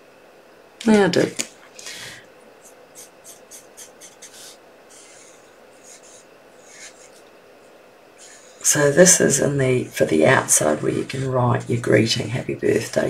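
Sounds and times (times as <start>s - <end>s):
brush strokes on card: 2.6s - 7.2s.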